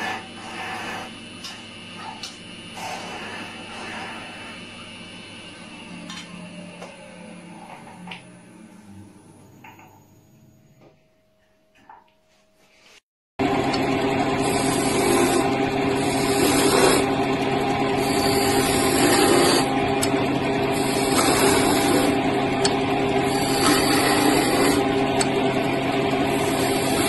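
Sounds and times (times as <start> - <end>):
chisel scraping spinning wood: 0.0 - 4.8, 13.7 - 27.0
wood lathe motor hum: 0.0 - 10.0, 13.4 - 27.0.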